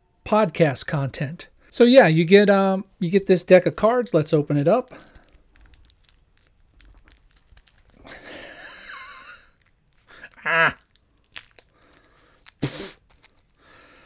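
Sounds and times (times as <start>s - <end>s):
plastic wrap crinkling and tearing: 4.8s - 14.0s.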